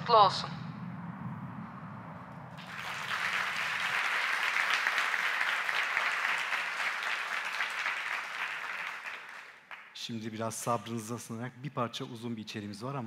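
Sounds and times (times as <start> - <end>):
low hum: 0.0 - 4.4
audience applauding: 2.6 - 10.0.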